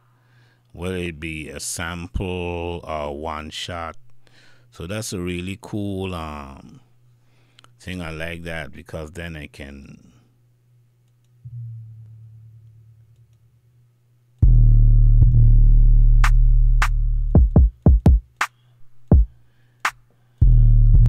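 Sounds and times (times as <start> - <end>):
booming bass notes: 11.5 - 13.1, 14.4 - 17.8, 20.4 - 21.0
short bass hits: 14.4 - 17.5.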